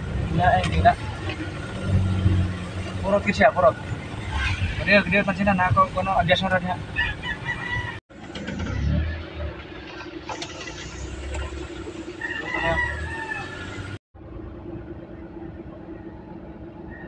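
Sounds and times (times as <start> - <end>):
car engine humming: 0.0 - 17.0
rooster crowing: 7.0 - 8.0, 12.1 - 14.0.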